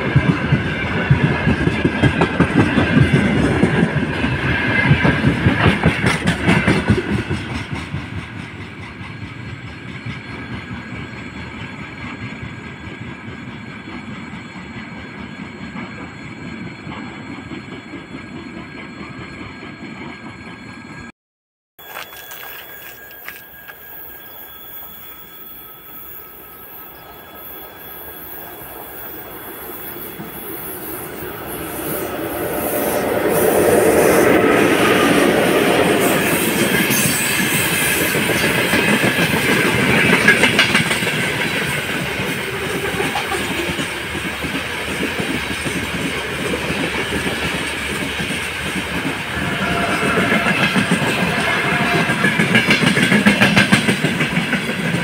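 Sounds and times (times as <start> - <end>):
electric locomotive passing: 0.0 - 21.1, 21.8 - 55.0
wheels clacking over rail joints: 31.4 - 55.0.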